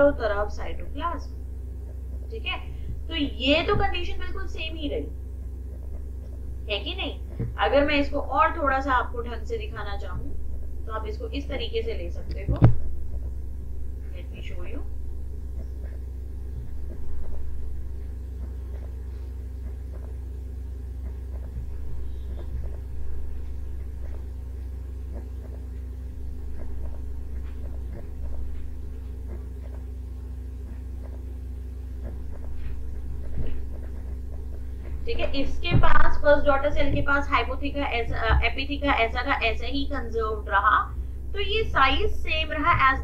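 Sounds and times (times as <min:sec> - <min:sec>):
low background hum: 0:00.0 - 0:43.0
faint clicks and taps: 0:07.3 - 0:07.6, 0:15.5 - 0:30.0, 0:30.6 - 0:31.3, 0:32.0 - 0:37.2.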